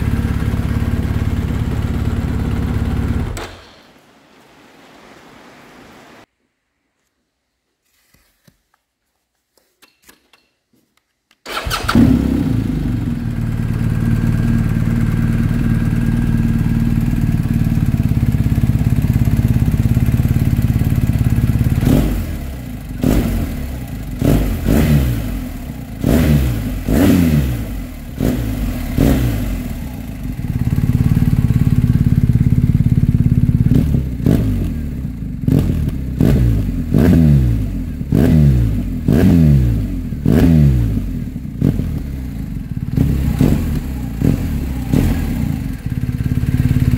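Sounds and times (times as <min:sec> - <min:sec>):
motorcycle engine idling: 0:00.0 - 0:03.5, 0:11.5 - 0:37.0, 0:39.8 - 0:46.9.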